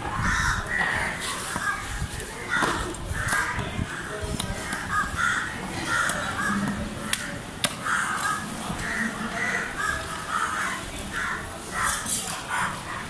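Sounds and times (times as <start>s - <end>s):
crows cawing: 0.1s - 13.0s.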